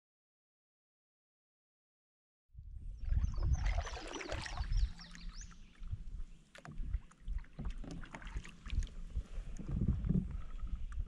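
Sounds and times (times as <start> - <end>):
paddle splashing in water: 3.0 - 9.6
bird chirps: 3.1 - 5.8.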